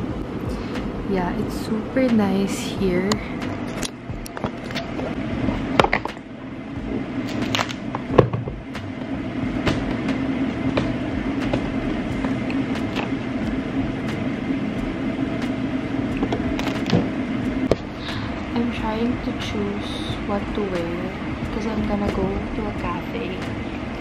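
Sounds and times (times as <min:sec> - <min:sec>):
steady low hum: 0:00.0 - 0:24.0
suitcase knocks and clicks: 0:08.1 - 0:08.6.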